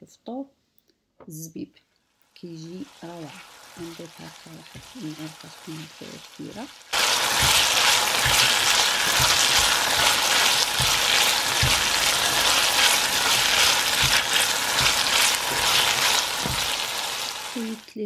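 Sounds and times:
fruit sizzling in oil: 2.5 - 17.9
spatula knocking against pan: 7.3 - 16.8.

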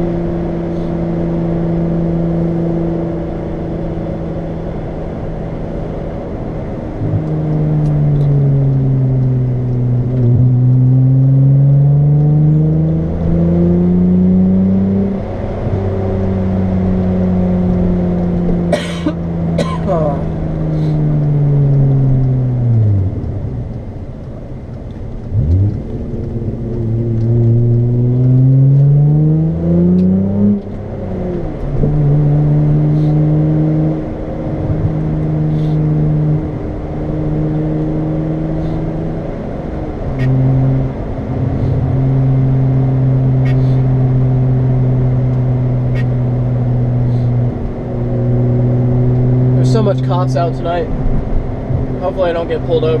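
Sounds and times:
car engine and exhaust: 0.0 - 53.0.

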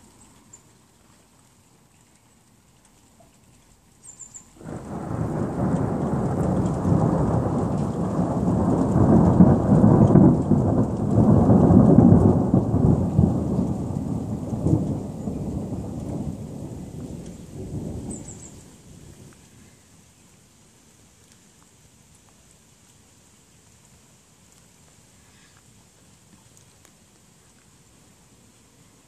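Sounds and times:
thunder rumbling: 4.6 - 19.4.

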